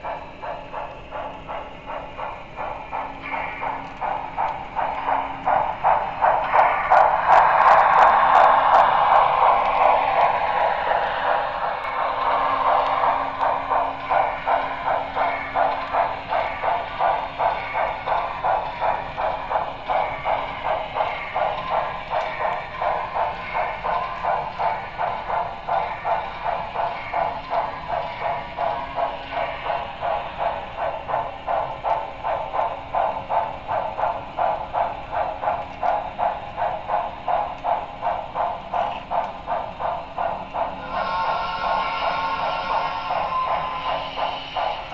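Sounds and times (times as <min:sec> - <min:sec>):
steam exhaust chuffs from speaker: 0:39.8 - 0:44.9.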